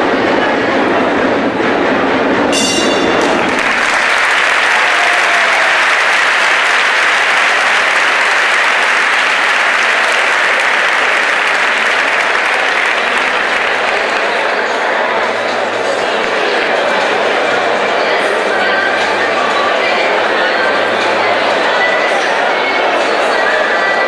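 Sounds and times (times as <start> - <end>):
boxing ring bell: 2.6 - 3.4
crowd applauding: 2.6 - 17.8.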